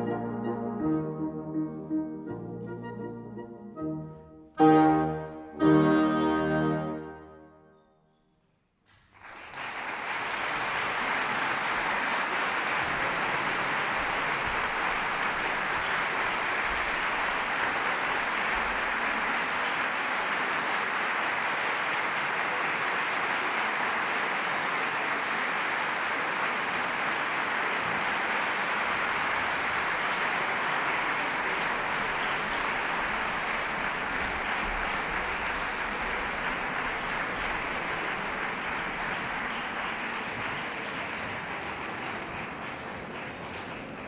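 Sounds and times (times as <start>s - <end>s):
audience applause: 8.9s - 44.0s.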